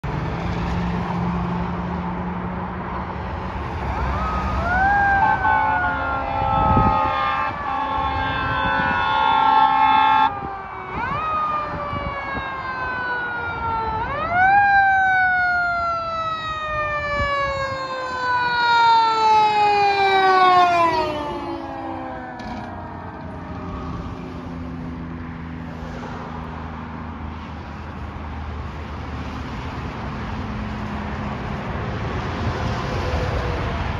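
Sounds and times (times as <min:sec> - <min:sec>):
fire engine siren: 0:02.8 - 0:28.8
horn blast: 0:05.1 - 0:10.4.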